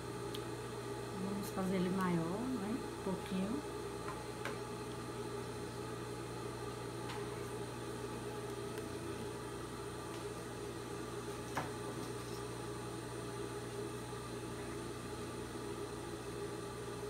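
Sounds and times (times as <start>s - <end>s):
low room hum: 0.0s - 17.0s.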